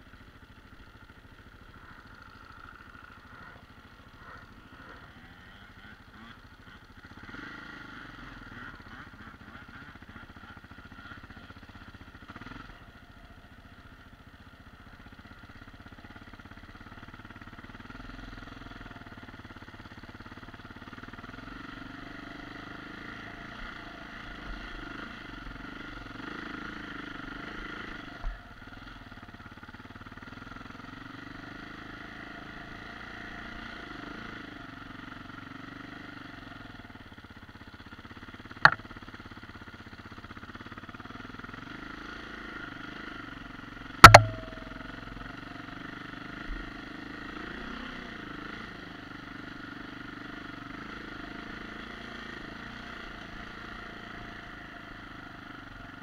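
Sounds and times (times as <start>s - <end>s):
motorcycle engine running: 0.0s - 56.0s
sharp knock: 44.0s - 45.0s.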